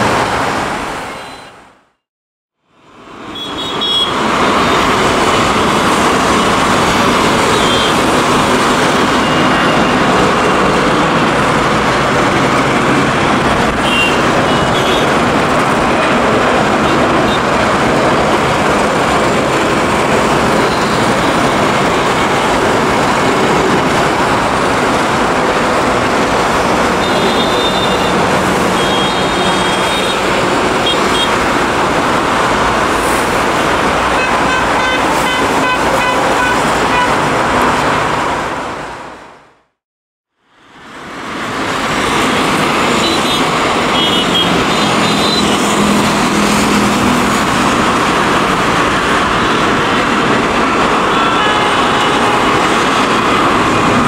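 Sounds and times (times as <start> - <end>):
car horn toots: 3.3 - 4.2, 7.5 - 8.1, 13.8 - 15.1, 27.0 - 30.2, 34.2 - 37.2, 51.1 - 52.6
jet engines roaring: 3.3 - 38.6, 40.9 - 54.0.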